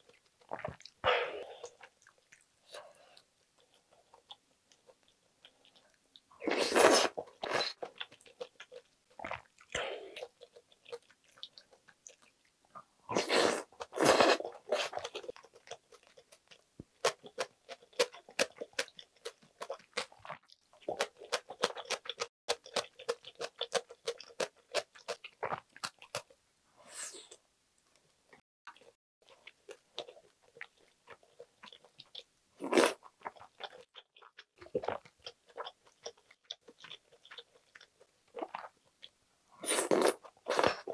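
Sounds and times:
slurping noodles: 6.4s - 7.8s, 13.1s - 15.3s, 39.6s - 40.9s.

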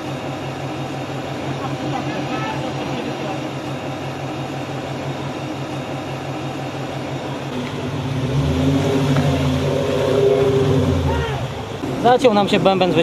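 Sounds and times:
engine revving: 7.0s - 13.0s.

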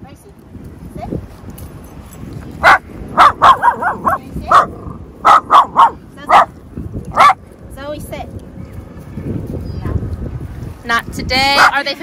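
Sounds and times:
dog barking: 2.6s - 6.5s, 7.1s - 7.4s, 11.6s - 11.8s.

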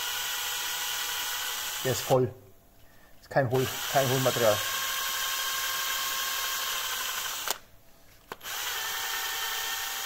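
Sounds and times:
cordless drill boring plastic: 0.0s - 2.2s, 3.6s - 7.6s, 8.3s - 10.0s
drill click: 3.6s - 7.6s.

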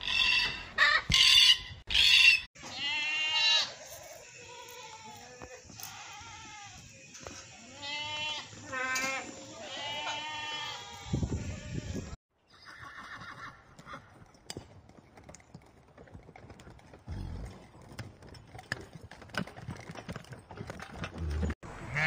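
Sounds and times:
goat bleating: 2.0s - 6.9s, 7.6s - 12.0s
grazing horses rustling: 12.7s - 21.6s.

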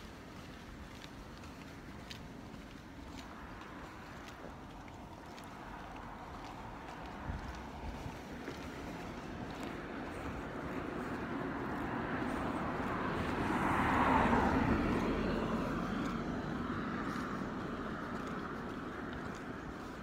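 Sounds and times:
vehicle passing by: 5.4s - 20.0s.

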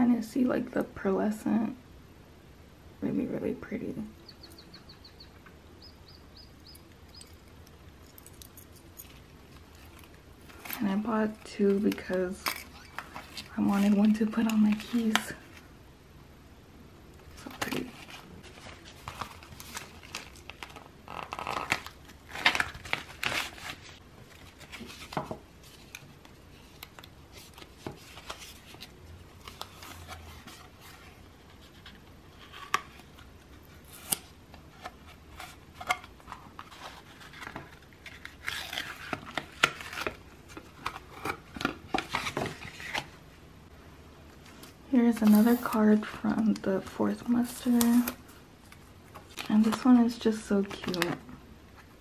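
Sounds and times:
plastic packaging rustling: 17.4s - 34.1s.

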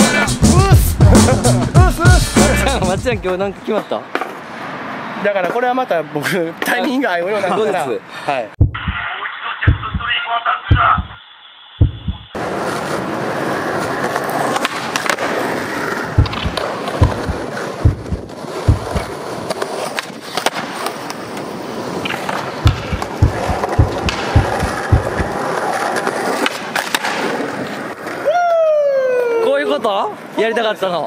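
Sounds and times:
skateboard wheels rolling on concrete: 0.0s - 8.1s, 12.3s - 31.0s
low knocks: 8.6s - 9.0s, 9.7s - 10.1s, 11.8s - 12.3s, 16.1s - 19.1s, 22.6s - 25.3s.

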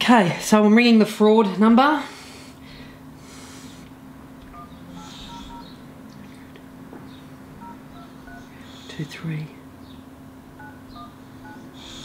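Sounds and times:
faint steady hum: 0.0s - 12.0s
phone keypad beeps: 4.5s - 5.7s, 7.6s - 8.5s, 10.6s - 11.7s.

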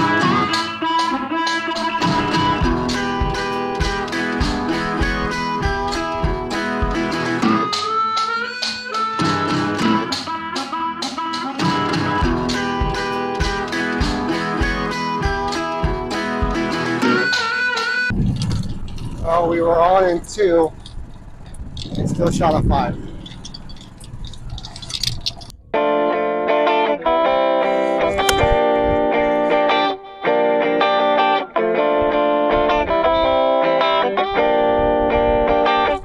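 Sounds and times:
plucked guitar music over beat: 0.0s - 18.2s, 25.7s - 36.0s
sliding guitar note: 0.0s - 19.9s, 25.8s - 36.0s.

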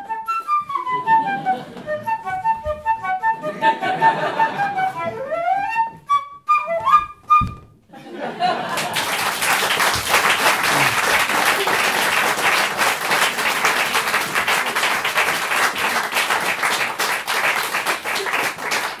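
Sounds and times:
audience applauding: 8.4s - 19.0s.

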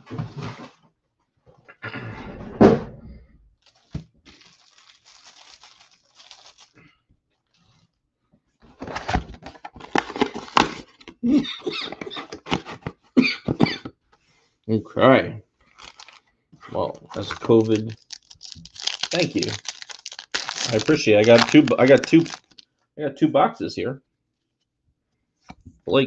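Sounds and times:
wrapper and cardboard tearing: 3.6s - 6.8s, 8.8s - 11.1s, 15.7s - 16.2s, 16.9s - 22.6s.

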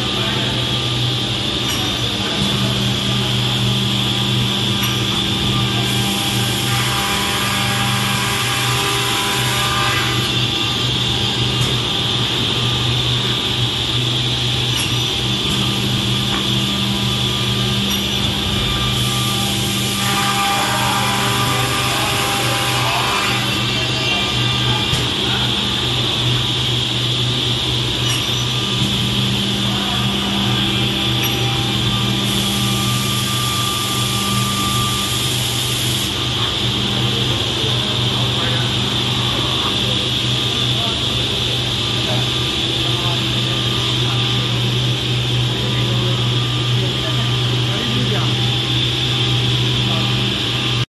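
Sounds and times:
machine motor hum: 0.0s - 50.9s.

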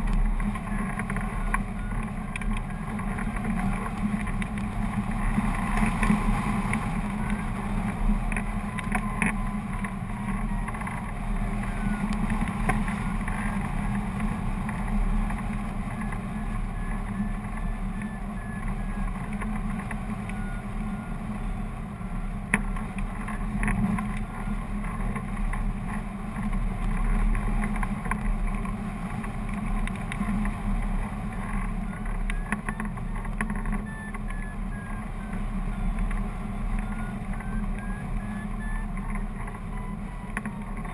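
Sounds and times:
high beeps varying in pitch: 16.7s - 19.0s, 33.8s - 39.0s.

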